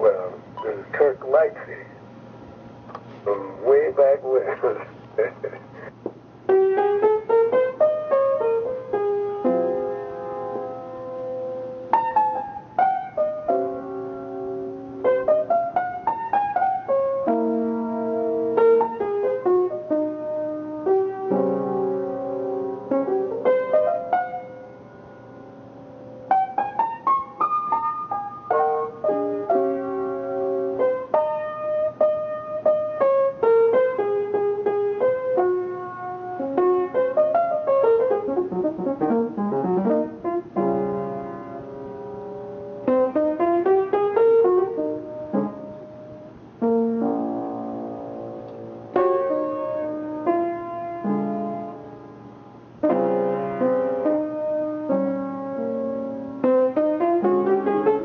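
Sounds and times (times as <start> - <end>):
jazz piano: 0.0 - 58.0.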